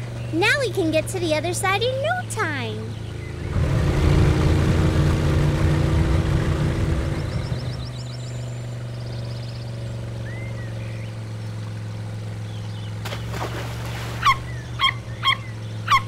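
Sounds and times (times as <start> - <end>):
vehicle motor hum: 0.0 - 16.0
animal chirping: 14.2 - 16.0.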